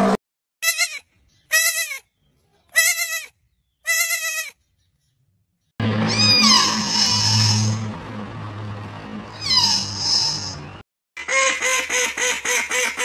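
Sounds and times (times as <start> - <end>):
low hum: 5.8 - 10.8.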